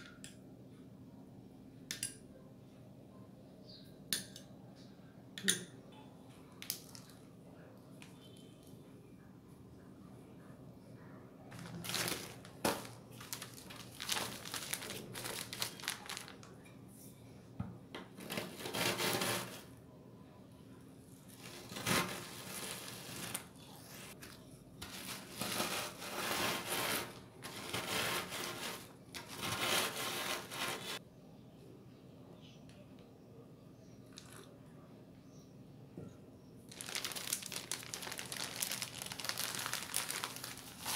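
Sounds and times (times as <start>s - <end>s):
plastic bag crinkling: 11.5s - 16.6s, 21.3s - 29.6s, 36.7s - 40.9s.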